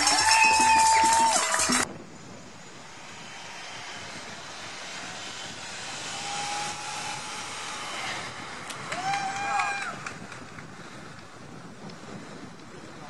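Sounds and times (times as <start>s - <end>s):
crowd cheering: 0.0s - 1.9s, 6.2s - 10.6s
music: 0.0s - 1.9s
vehicle rushing on road: 0.0s - 13.0s.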